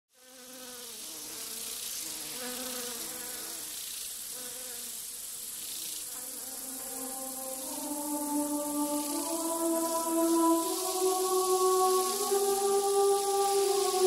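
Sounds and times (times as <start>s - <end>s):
high-pitched insect-like buzz: 0.1s - 14.0s
soft slow melody: 6.2s - 14.0s.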